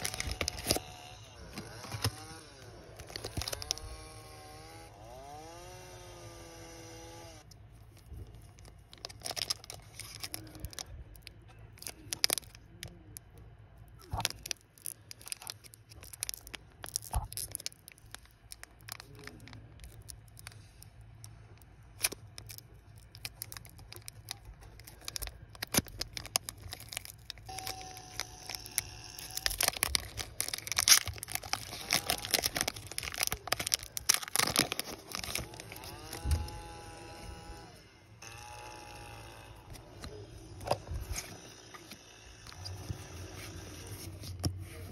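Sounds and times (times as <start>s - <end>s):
foil wrapper crinkling and tearing: 0.0s - 2.4s, 3.0s - 4.2s, 7.6s - 13.3s, 13.9s - 37.6s.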